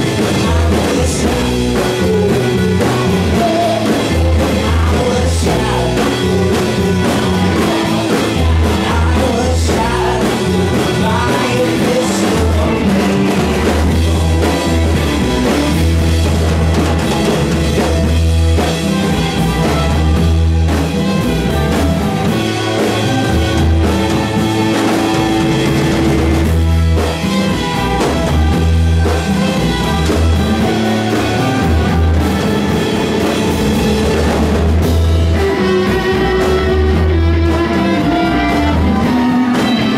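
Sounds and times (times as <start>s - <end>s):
person singing: 0.0s - 16.0s, 27.3s - 39.9s
bass: 0.0s - 39.9s
drum kit: 0.0s - 39.9s
guitar: 0.0s - 39.9s.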